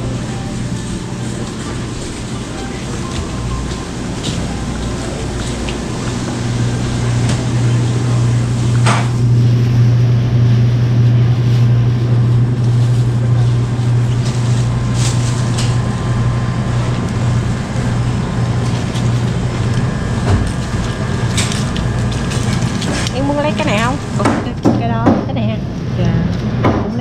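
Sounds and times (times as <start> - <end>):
low mechanical hum: 0.0 - 27.0
plastic bag rustling: 11.4 - 16.0.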